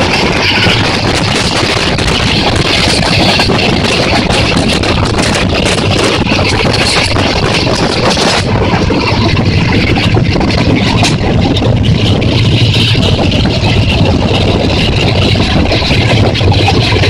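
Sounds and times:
train wheels rumbling on rail: 0.0s - 17.0s
wind rushing over microphone: 0.0s - 17.0s.

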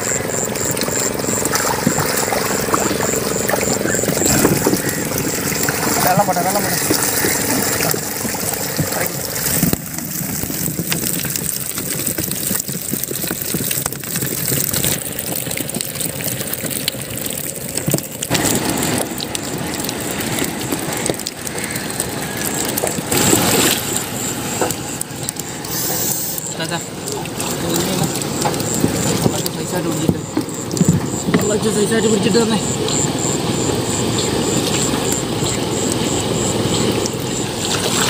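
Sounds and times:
fish splashing in shallow water: 0.0s - 38.0s.

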